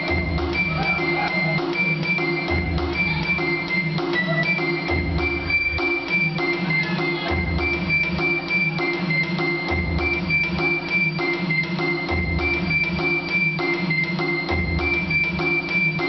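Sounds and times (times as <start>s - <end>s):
steady drumming: 0.0s - 16.0s.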